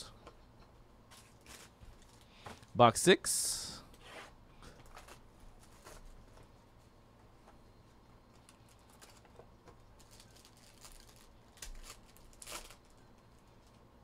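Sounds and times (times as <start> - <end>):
plastic wrap crinkling: 8.3 - 13.8.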